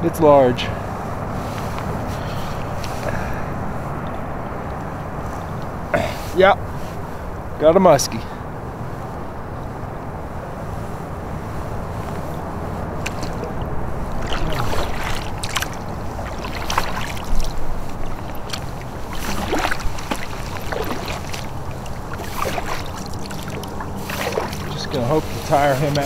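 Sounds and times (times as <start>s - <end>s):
water lapping against kayak: 0.8s - 7.4s, 11.4s - 26.0s
wind on microphone: 8.4s - 26.0s
sharp water splashes: 13.0s - 26.0s.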